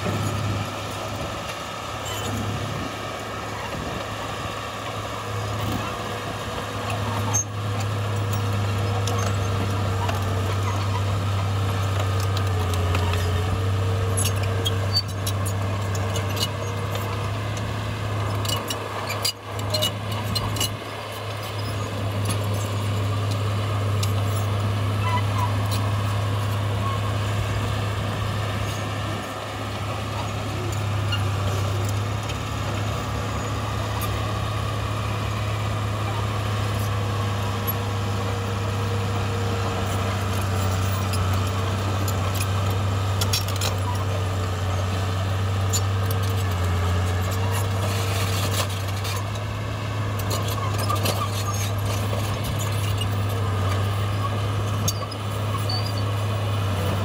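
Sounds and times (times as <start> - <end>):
heavy diesel machinery running: 0.0 - 57.0.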